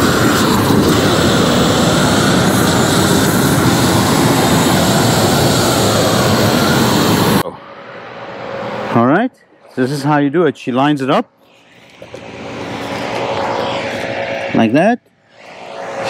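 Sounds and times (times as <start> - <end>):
roofing torch rushing: 0.0 - 7.4, 11.8 - 16.0.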